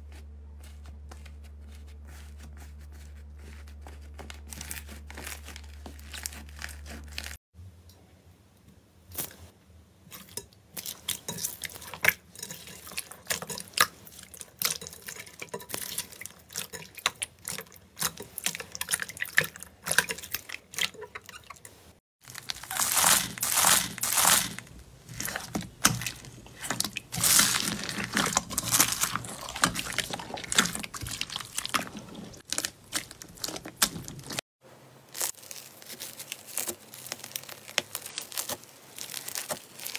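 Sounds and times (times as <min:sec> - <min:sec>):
slime crackling: 0:22.2 - 0:34.4, 0:35.1 - 0:39.9
slime squelching and clicking: 0:22.3 - 0:34.4.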